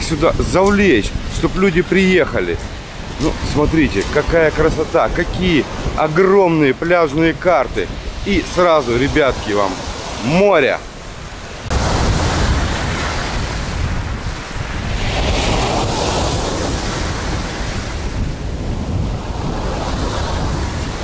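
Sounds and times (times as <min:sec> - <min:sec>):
waves surging onto pebble beach: 0:00.0 - 0:21.0
wind buffeting microphone: 0:00.0 - 0:21.0.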